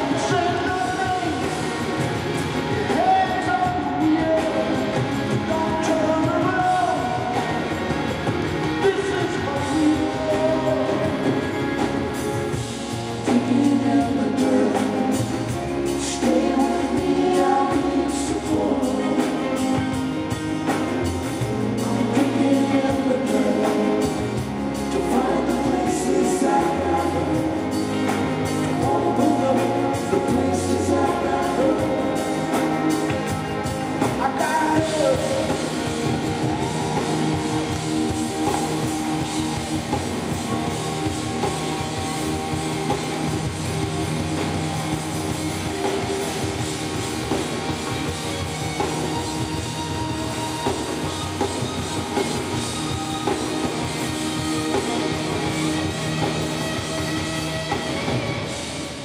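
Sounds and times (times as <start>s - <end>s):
man singing: 0.0s - 43.5s
live rock band playing: 0.0s - 59.0s.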